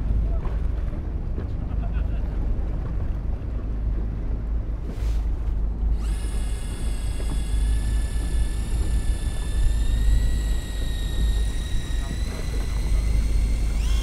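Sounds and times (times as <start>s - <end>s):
steady low rumble: 0.0s - 14.0s
fishing reel motor whining: 5.9s - 14.0s.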